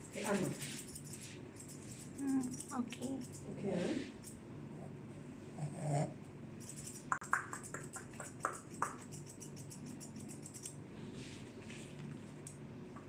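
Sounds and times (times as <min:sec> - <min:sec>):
shears snipping fur: 0:00.0 - 0:04.4, 0:06.6 - 0:10.8.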